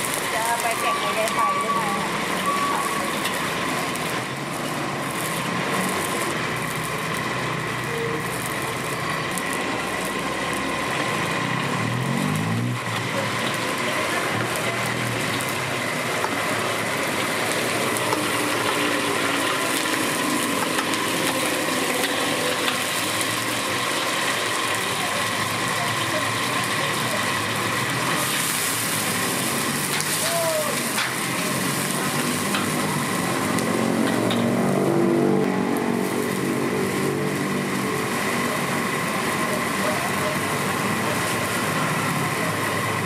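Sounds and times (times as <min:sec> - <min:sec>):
shrimp sizzling in hot oil: 0:00.0 - 0:43.0
metal spatula in wok: 0:30.8 - 0:33.4.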